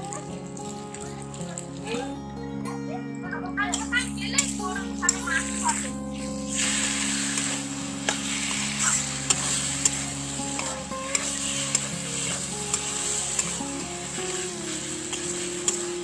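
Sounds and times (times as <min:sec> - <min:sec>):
frying sizzle: 0:00.0 - 0:02.1, 0:03.7 - 0:16.0
metal spatula scraping a pan: 0:04.4 - 0:16.0.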